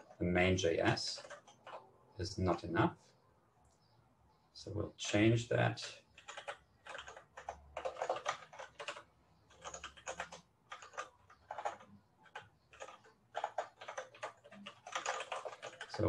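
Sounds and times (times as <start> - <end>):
typing on keyboard: 1.0 - 1.9, 6.1 - 16.0.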